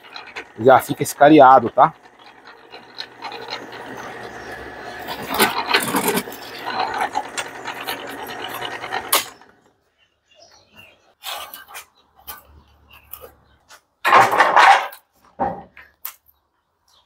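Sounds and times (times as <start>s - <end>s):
drill bit rasping metal: 0.0s - 9.6s
drill press motor hum: 0.0s - 9.7s.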